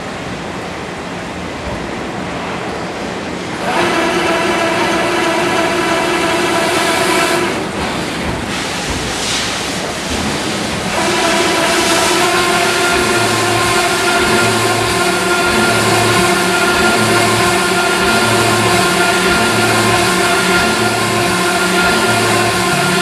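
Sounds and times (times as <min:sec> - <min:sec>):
pitched machine whine: 0:03.3 - 0:23.0
honing machine hiss: 0:10.8 - 0:23.0.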